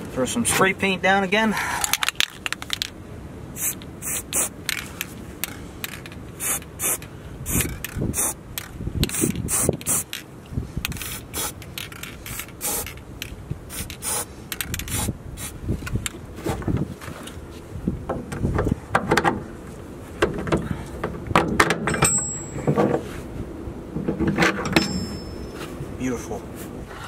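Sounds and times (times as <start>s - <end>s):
spray paint can hissing: 3.6s - 4.8s, 6.4s - 10.2s, 10.9s - 13.0s, 13.7s - 15.6s.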